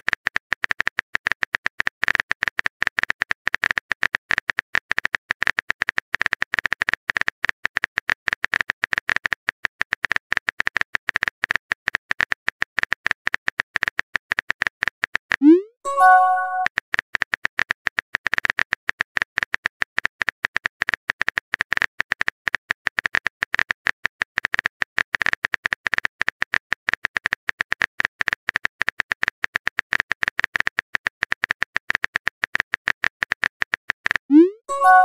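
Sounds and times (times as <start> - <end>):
message chime: 15.4 - 16.7, 34.3 - 35.0.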